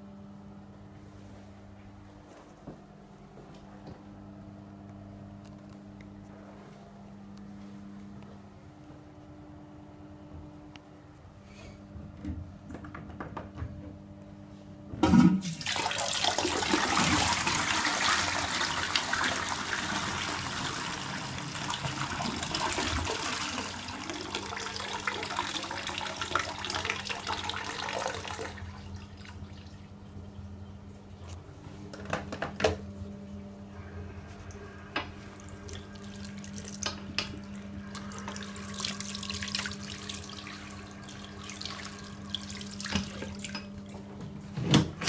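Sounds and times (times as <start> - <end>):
water rushing through toilet: 15.0 - 30.1, 34.5 - 43.5.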